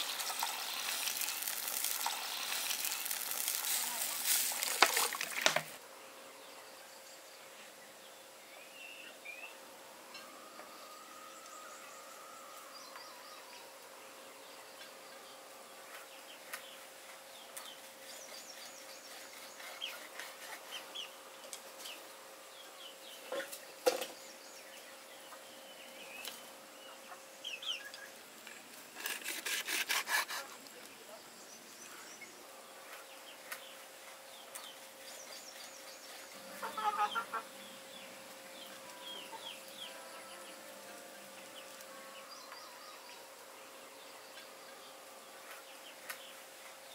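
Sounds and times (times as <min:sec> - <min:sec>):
small birds chirping: 0:11.4 - 0:28.7, 0:30.7 - 0:40.7
chickens clucking: 0:36.3 - 0:38.0.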